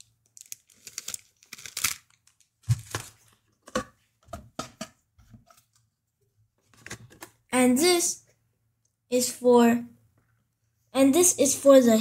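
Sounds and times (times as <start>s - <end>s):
plastic bag crinkling: 0.0s - 3.4s.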